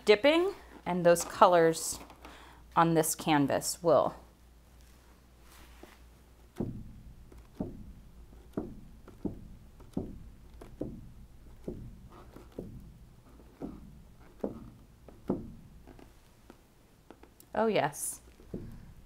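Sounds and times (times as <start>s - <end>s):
balloon thumping on canvas: 5.5s - 17.4s, 18.3s - 19.0s.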